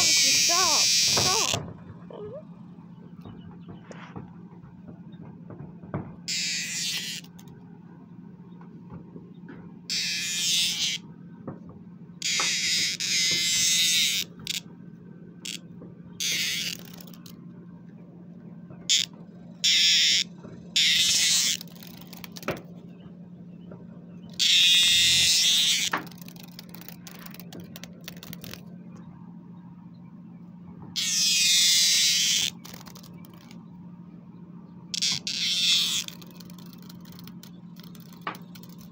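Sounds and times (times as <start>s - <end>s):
cicada buzzing: 0.0s - 1.7s, 6.3s - 7.5s, 9.9s - 11.0s, 12.2s - 14.6s, 15.4s - 15.6s, 16.2s - 17.3s, 18.9s - 22.7s, 24.3s - 28.6s, 31.0s - 33.6s, 34.9s - 38.9s.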